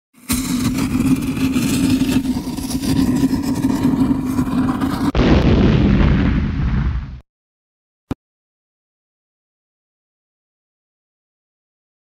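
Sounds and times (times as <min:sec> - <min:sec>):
loud rumbling drone: 0:00.2 - 0:05.8
sudden boom: 0:04.2 - 0:07.2.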